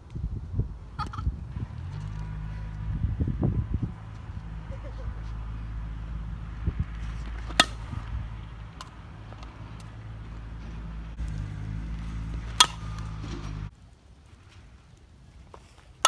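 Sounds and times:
steady low hum: 0:00.4 - 0:13.7
bat cracking a softball: 0:06.9 - 0:13.7.

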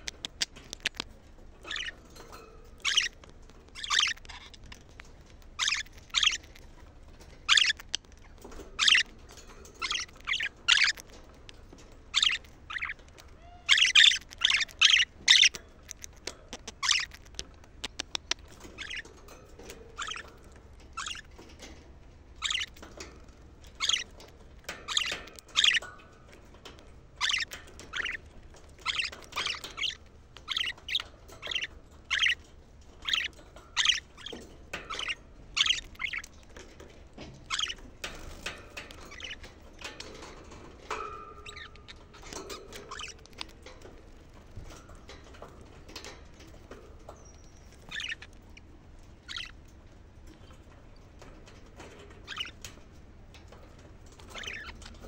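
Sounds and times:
budgerigars chirping: 0:00.1 - 0:04.8, 0:05.6 - 0:06.7, 0:07.4 - 0:09.1, 0:09.7 - 0:11.1, 0:12.1 - 0:21.4, 0:22.4 - 0:22.8, 0:23.7 - 0:25.9, 0:27.2 - 0:36.5, 0:37.4 - 0:40.3, 0:40.9 - 0:43.6, 0:47.1 - 0:49.6, 0:52.2 - 0:52.6, 0:54.1 - 0:55.0.

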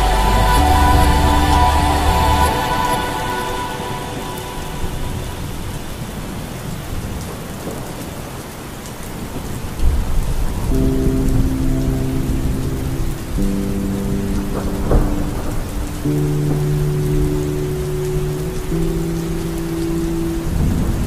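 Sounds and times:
song with bass: 0:00.0 - 0:06.0, 0:10.8 - 0:21.0
road noise: 0:00.0 - 0:07.1
rain on car windshield: 0:05.9 - 0:21.0.

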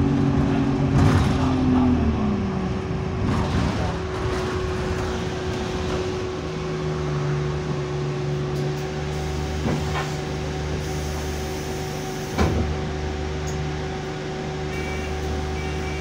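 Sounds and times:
bus engine drone: 0:00.0 - 0:16.0.

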